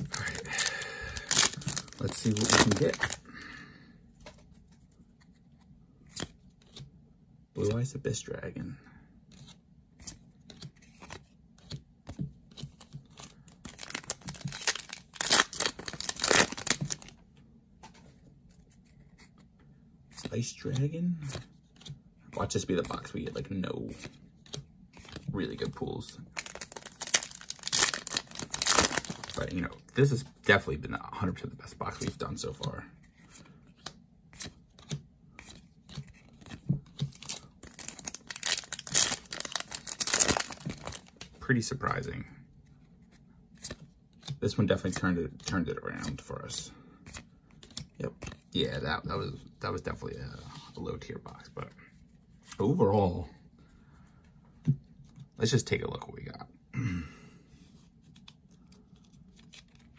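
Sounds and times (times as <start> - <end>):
trading cards clicking and rustling: 0.0 - 3.2, 9.3 - 17.2, 20.2 - 30.2, 31.9 - 41.4, 47.0 - 48.5
foil wrapper crinkling and tearing: 0.0 - 3.3, 13.6 - 17.1, 26.3 - 29.6, 37.1 - 41.2.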